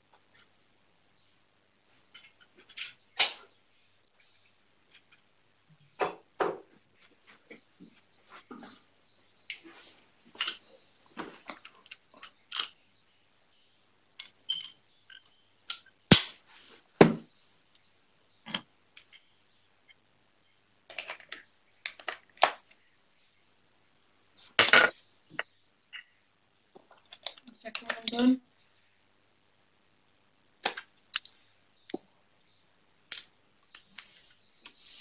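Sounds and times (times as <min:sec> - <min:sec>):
objects handled clicking and tapping: 0:04.8 - 0:12.8, 0:14.1 - 0:16.2, 0:17.0 - 0:19.2, 0:20.9 - 0:22.8, 0:26.7 - 0:28.1, 0:33.1 - 0:34.8.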